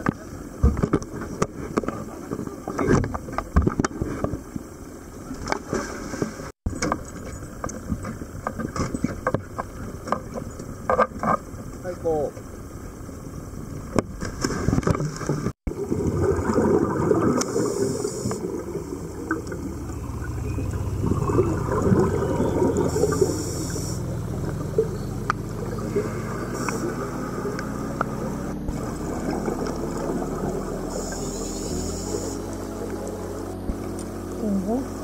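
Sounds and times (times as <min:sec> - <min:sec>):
boat engine hum: 0:06.3 - 0:35.0
gurgling bubbles underwater: 0:14.7 - 0:34.1
regulator breathing hisses: 0:17.4 - 0:18.4, 0:22.9 - 0:24.1, 0:26.0 - 0:27.0, 0:30.9 - 0:32.6.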